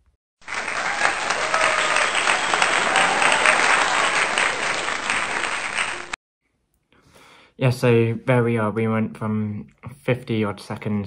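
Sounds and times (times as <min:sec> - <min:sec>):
crowd applause: 0:00.4 - 0:06.2.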